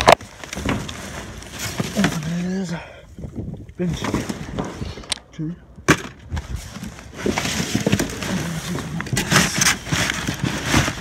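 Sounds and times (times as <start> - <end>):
plastic trash bags rustling: 0.0 - 2.7, 6.2 - 11.0
items knocking and clicking: 5.8 - 11.0.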